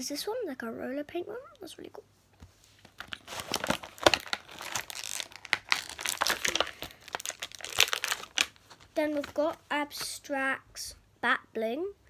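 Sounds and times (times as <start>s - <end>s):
plastic packaging crinkling: 2.8s - 9.6s.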